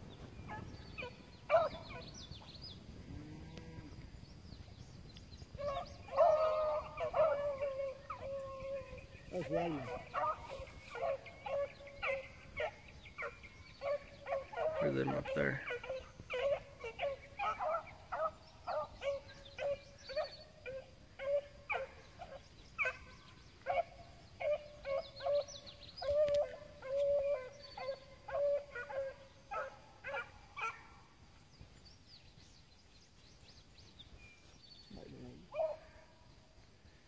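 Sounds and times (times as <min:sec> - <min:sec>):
hounds baying: 0:00.4 - 0:02.2, 0:05.6 - 0:31.1, 0:35.5 - 0:36.1.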